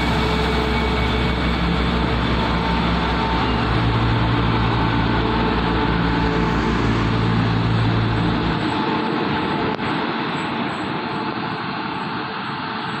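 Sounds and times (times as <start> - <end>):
diesel train engine drone: 0.0 - 13.0
train wheels on rails: 0.0 - 13.0.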